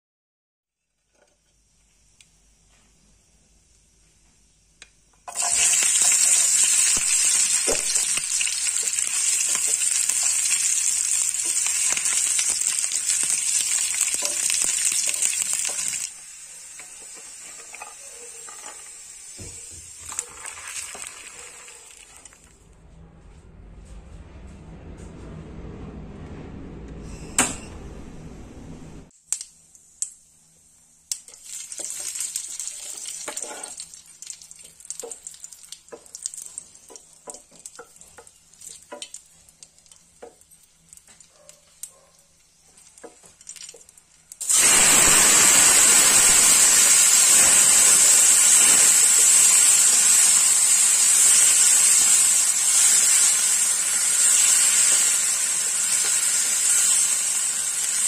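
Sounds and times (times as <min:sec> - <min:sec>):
tomatoes sizzling in oil: 0:05.0 - 0:22.5, 0:29.6 - 0:58.0
chillies frying in oil: 0:05.3 - 0:22.5, 0:30.9 - 0:58.0
wooden spatula scraping a pan: 0:32.8 - 0:33.8.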